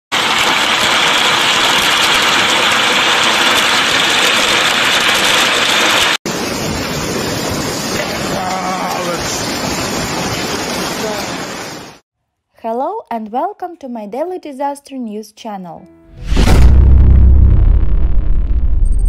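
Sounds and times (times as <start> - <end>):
heavy rain downpour: 0.1 - 12.0
hailstones clattering on gravel: 0.2 - 6.2.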